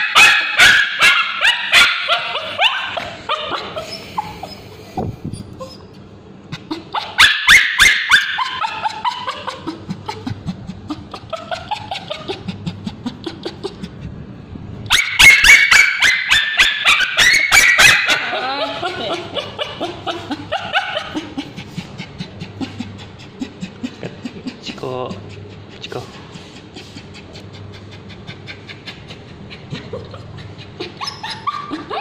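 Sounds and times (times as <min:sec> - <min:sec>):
dog yelping and crying: 0:00.0 - 0:06.0, 0:06.6 - 0:13.7, 0:14.9 - 0:21.7, 0:28.5 - 0:32.0
dog whimpering: 0:01.7 - 0:06.0, 0:06.6 - 0:14.0, 0:15.7 - 0:25.1, 0:26.4 - 0:32.0.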